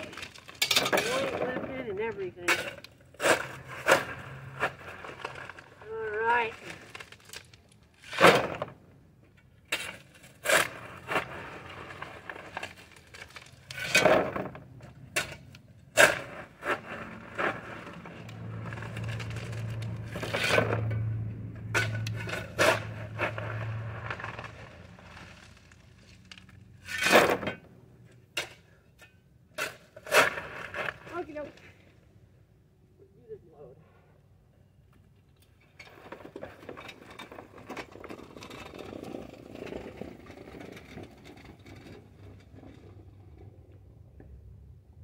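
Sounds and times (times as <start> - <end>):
shovel scraping into rock: 2.5 - 7.4, 8.0 - 8.6, 9.7 - 14.5, 16.0 - 20.8, 21.7 - 25.4, 26.8 - 27.6, 29.6 - 31.5.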